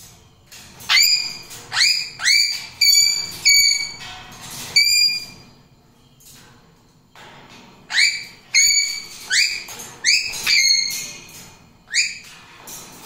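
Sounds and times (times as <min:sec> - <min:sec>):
parrot whistling calls: 0:00.9 - 0:04.0, 0:04.8 - 0:05.4, 0:07.9 - 0:11.0, 0:11.9 - 0:12.2.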